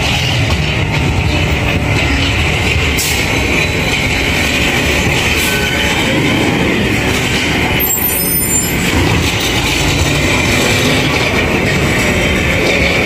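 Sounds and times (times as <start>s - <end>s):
heavy truck engine running: 0.0s - 13.0s.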